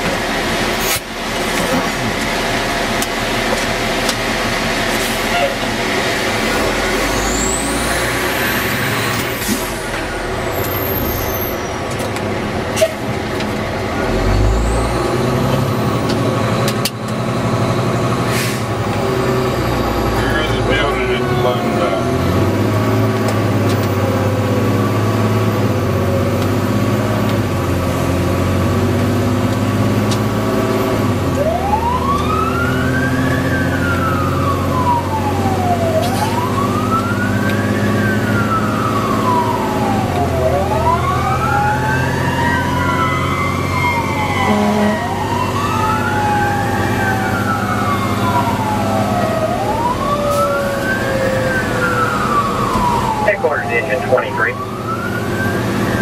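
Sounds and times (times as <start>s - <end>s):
fire engine running: 0.0s - 56.0s
siren wailing: 19.7s - 23.2s, 31.2s - 56.0s.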